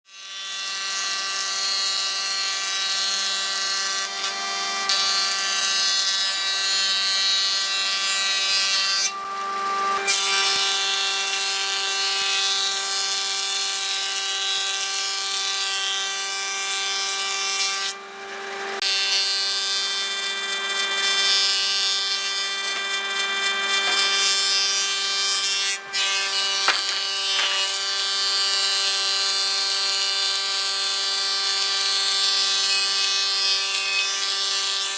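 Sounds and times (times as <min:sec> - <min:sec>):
thickness planer whining: 0:00.2 - 0:34.9.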